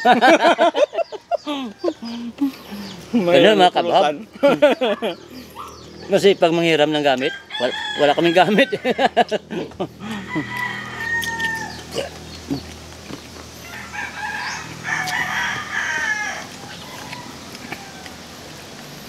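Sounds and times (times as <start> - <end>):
rooster crowing: 0.0 - 2.1, 7.2 - 9.4, 10.0 - 12.2, 13.6 - 18.2.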